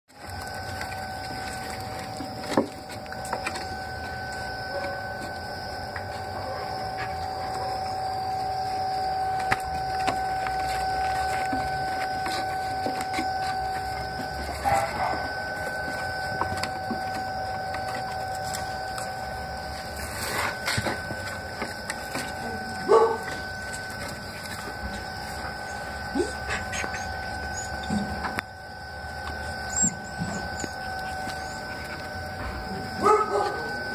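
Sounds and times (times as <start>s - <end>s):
puppies moving on wooden boards: 0.1s - 33.9s
steady high-pitched hum: 0.1s - 33.9s
puppy whimpers: 25.6s - 28.2s, 29.6s - 32.0s.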